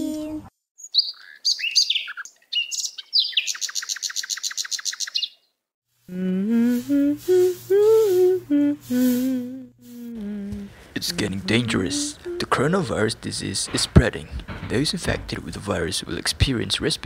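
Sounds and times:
fast bird trill: 0.8 - 5.4
birds chirping: 0.8 - 5.6
woman humming: 6.1 - 12.7.

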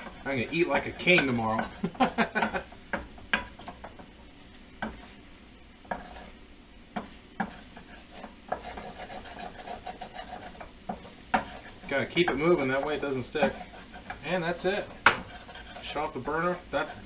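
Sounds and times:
faint sizzle of eggs: 0.0 - 17.0
wooden spoon scraping a pan: 0.0 - 17.0
spoon knocking against pan: 2.4 - 4.0, 10.6 - 11.6, 15.0 - 15.3.

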